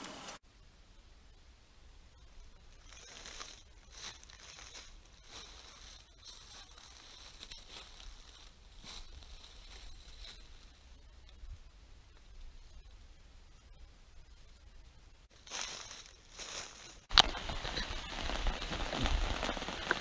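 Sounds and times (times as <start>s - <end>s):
footsteps crunching dry leaves: 2.8s - 10.7s, 15.4s - 20.0s.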